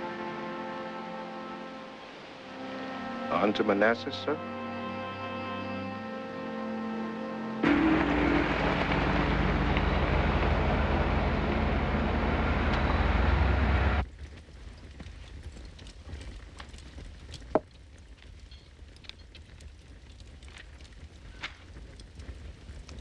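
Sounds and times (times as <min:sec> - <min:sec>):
car engine and road noise: 0:07.6 - 0:14.0.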